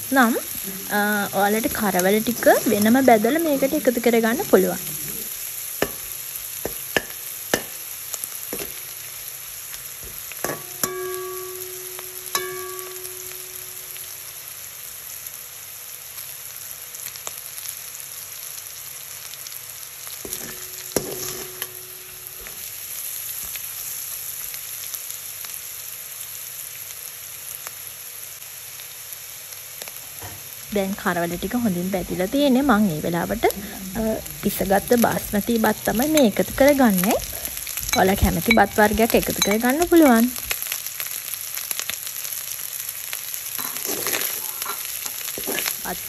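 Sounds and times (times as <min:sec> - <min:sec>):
food sizzling in oil: 0:00.0 - 0:46.0
spoon knocking ringing pan: 0:05.8 - 0:07.8, 0:08.6 - 0:08.8, 0:10.0 - 0:14.2, 0:20.3 - 0:22.7, 0:34.4 - 0:40.3
metal spoon scraping pan: 0:10.0 - 0:13.6, 0:20.3 - 0:22.7, 0:43.6 - 0:46.0.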